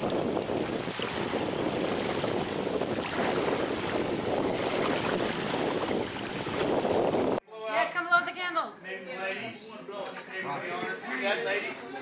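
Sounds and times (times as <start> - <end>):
rushing water: 0.0 - 7.4
wind buffeting the microphone: 0.0 - 7.4.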